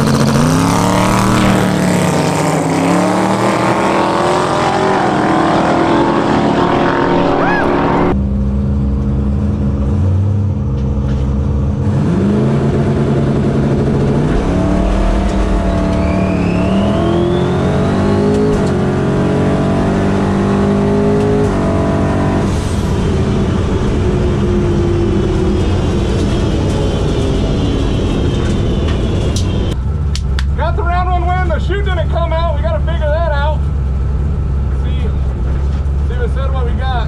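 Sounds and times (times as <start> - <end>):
car engine revving: 0.0 - 36.9
high rising turbo whistle: 0.6 - 8.2, 13.7 - 19.5.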